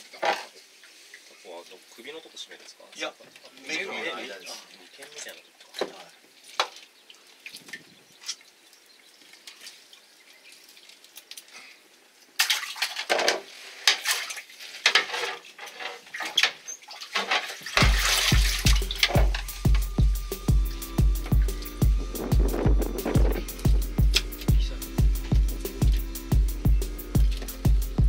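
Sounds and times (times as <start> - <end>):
octopus slapping and squelching in net: 17.0 - 19.4
background music with low beat: 17.8 - 28.0.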